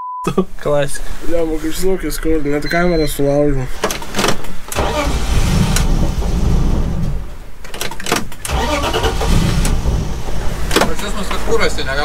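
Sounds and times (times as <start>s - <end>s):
car engine cranking and sputtering: 3.9s - 12.0s.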